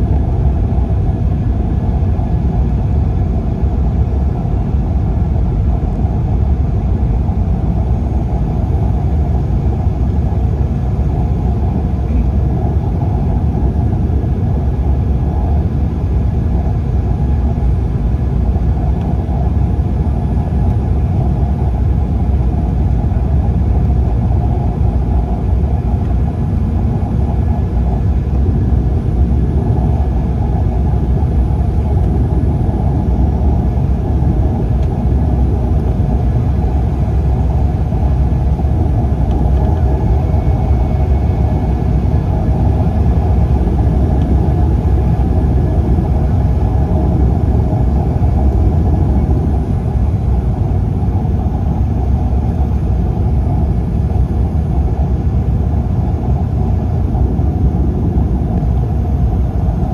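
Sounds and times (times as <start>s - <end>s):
airliner cabin engine rumble: 0.0s - 59.9s.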